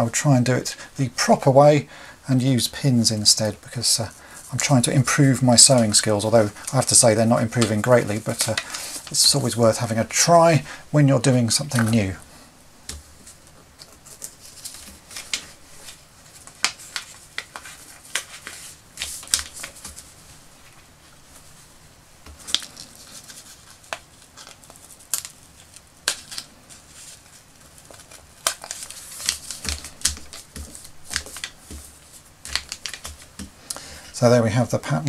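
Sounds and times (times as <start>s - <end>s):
paper rustling: 3.7s - 10.6s, 12.9s - 21.7s, 22.3s - 33.6s.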